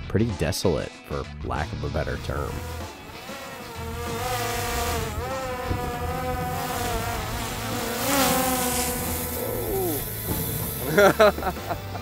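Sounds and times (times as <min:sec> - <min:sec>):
drone propellers whining: 0:02.9 - 0:11.1.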